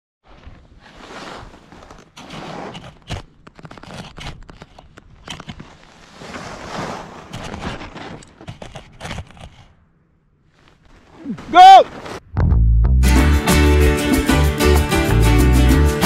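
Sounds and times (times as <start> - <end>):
skis scraping over packed snow: 0.2 - 4.8, 5.4 - 9.6
sharp crackles and knocks: 1.7 - 9.8.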